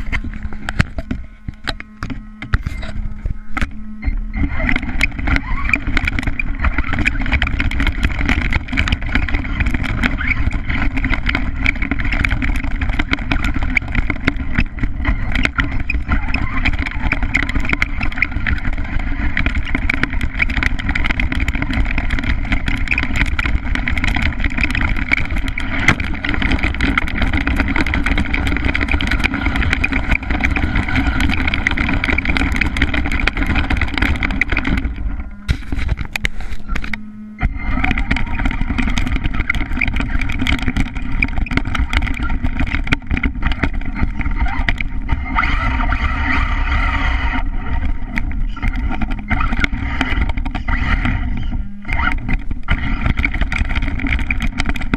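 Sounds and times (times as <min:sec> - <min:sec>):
knocks and rattles over rough ground: 0:00.0 - 0:54.9
small toy truck motor running: 0:00.0 - 0:54.9.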